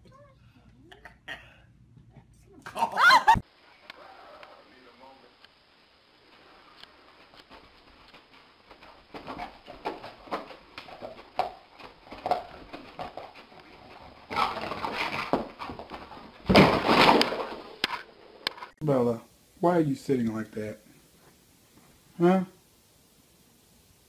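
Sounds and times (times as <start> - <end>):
dog paws scrabbling: 7.1 - 17.6.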